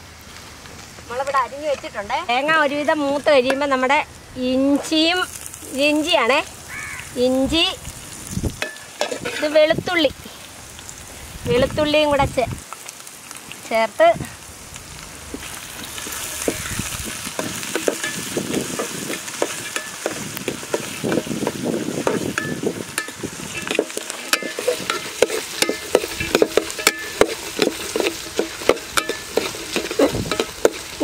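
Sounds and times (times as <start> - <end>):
food sizzling in hot oil: 0.0 - 31.0
steel spoon scraping a pan: 8.6 - 10.0, 15.8 - 31.0.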